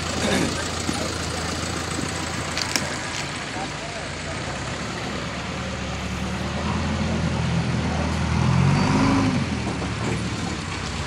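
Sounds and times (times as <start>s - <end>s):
backhoe diesel engine revving: 0.0s - 11.0s.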